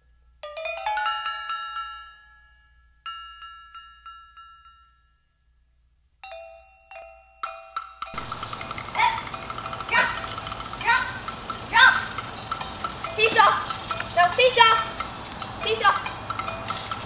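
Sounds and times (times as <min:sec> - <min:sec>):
ringing struck notes music: 0:07.6 - 0:17.0.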